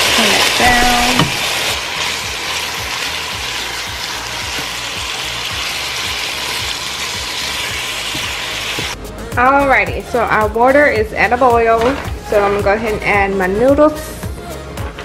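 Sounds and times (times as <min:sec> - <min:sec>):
chicken sizzling in oil: 0:00.0 - 0:09.0.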